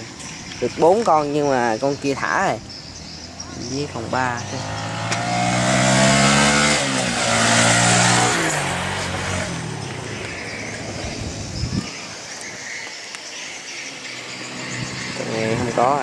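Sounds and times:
vehicle engine passing: 2.7s - 12.3s, 14.0s - 16.0s.

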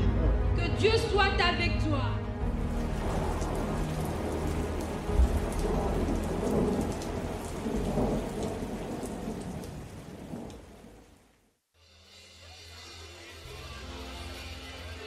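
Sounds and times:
rain: 2.4s - 11.7s
rolling thunder: 2.6s - 11.2s.

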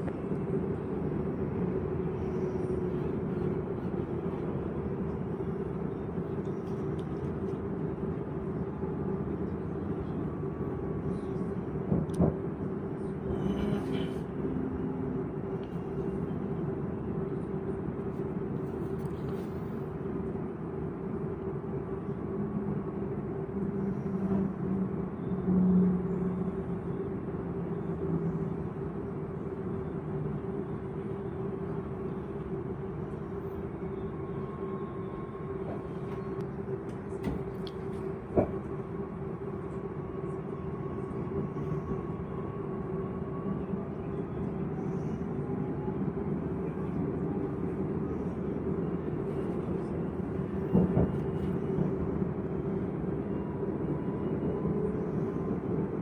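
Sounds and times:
train running equipment hum: 0.0s - 56.0s
faint high whine: 20.9s - 56.0s.

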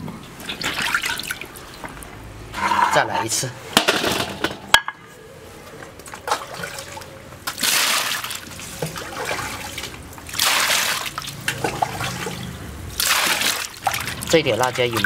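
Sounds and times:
water trickling: 0.0s - 2.4s, 6.1s - 15.0s
water pouring and splashing: 0.0s - 2.7s, 6.0s - 15.0s.

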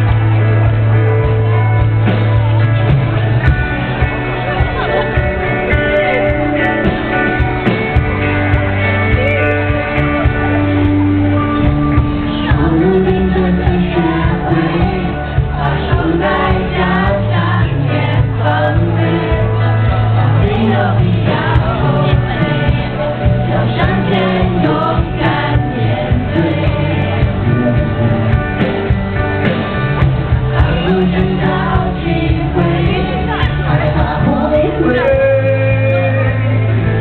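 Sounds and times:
drum kit: 0.0s - 37.0s
electric guitar: 0.0s - 37.0s
keyboard: 0.0s - 37.0s
man singing into microphone: 12.2s - 28.4s, 30.5s - 37.0s.

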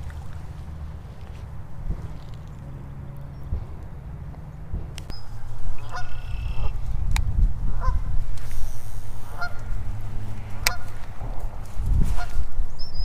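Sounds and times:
steady low rumble: 0.0s - 13.0s
geese honking: 5.1s - 6.8s, 7.8s - 8.0s, 9.1s - 11.0s, 12.2s - 12.4s.

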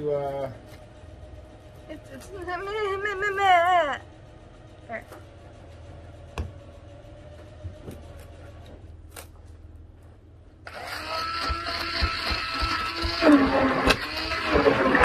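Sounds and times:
stick blender motor whirring: 10.6s - 15.0s.

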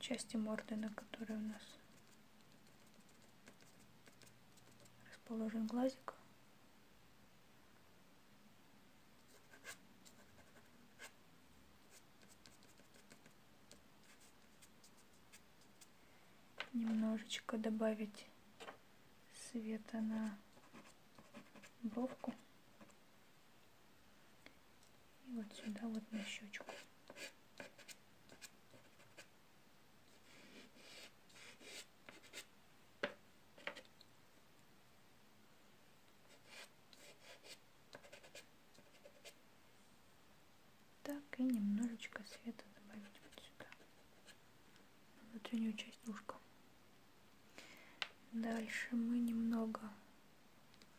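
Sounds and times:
pastel scratching on paper: 1.9s - 5.0s, 11.9s - 13.4s
small faint ticks: 50.7s - 50.9s.

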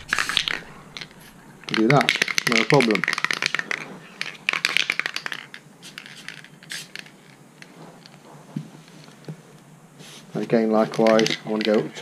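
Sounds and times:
spray paint hissing: 0.0s - 3.7s, 4.9s - 7.4s
spray can rattling: 0.0s - 7.4s.

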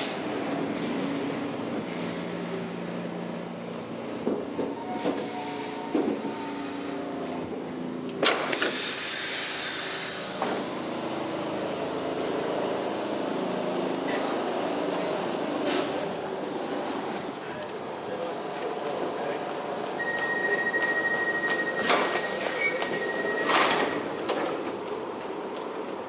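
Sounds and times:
standing train hum: 0.0s - 26.0s
air hiss of doors opening: 8.3s - 10.8s, 21.8s - 24.6s
metro train motor tones: 8.8s - 26.0s.

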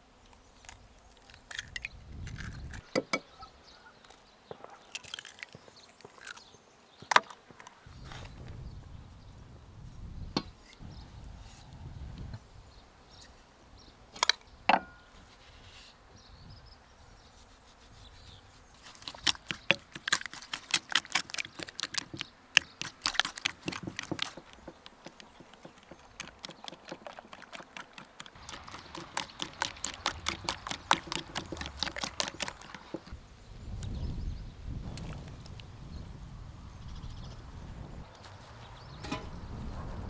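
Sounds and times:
spatula clicking against bowl: 19.0s - 33.1s.

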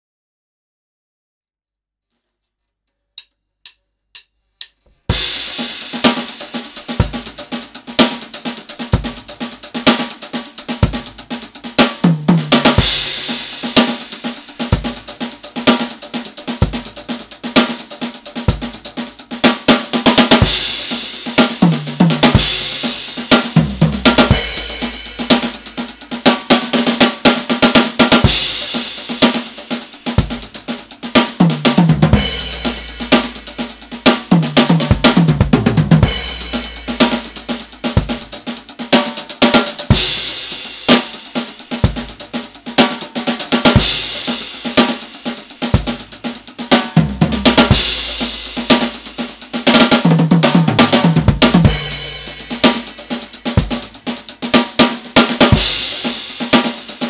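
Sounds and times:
drumstick clicks: 3.1s - 5.0s
drum kit playing groove: 3.2s - 57.0s.

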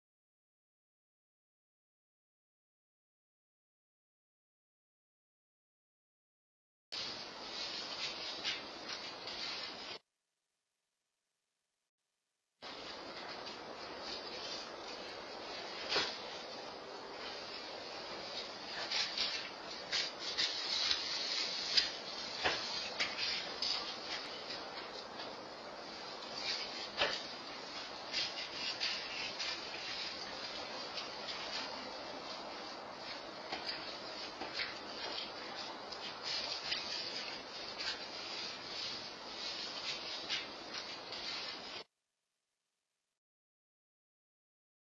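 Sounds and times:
steady hiss: 7.0s - 10.0s, 12.6s - 41.9s
scratchy crackles: 12.6s - 41.8s.

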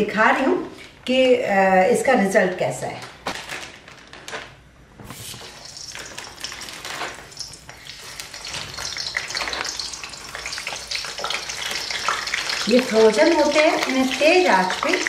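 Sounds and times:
food sizzling in hot oil: 5.2s - 15.0s.

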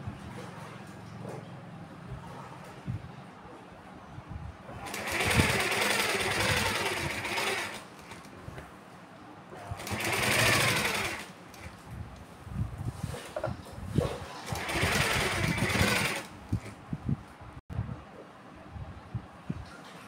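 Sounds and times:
sewing machine stitching: 4.8s - 8.3s, 9.8s - 11.7s, 14.0s - 16.7s.

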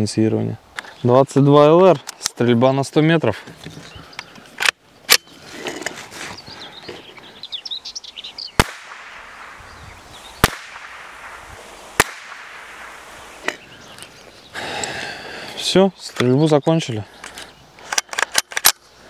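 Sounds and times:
birds chirping: 0.0s - 19.0s
rifle shots cracking: 8.6s - 13.7s.

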